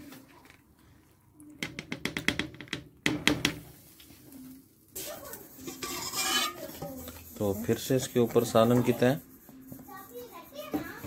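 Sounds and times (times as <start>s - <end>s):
scraping rice in pot: 5.0s - 11.0s.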